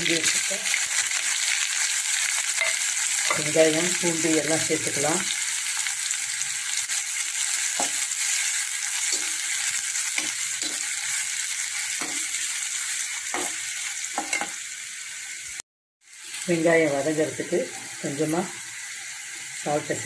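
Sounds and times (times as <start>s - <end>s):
onion sizzling in oil: 0.0s - 20.0s
spatula scraping a pan: 7.6s - 14.6s.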